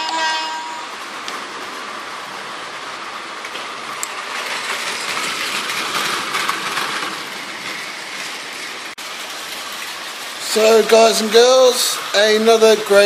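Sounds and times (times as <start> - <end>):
toy train wheels rattling on track: 3.4 - 13.0.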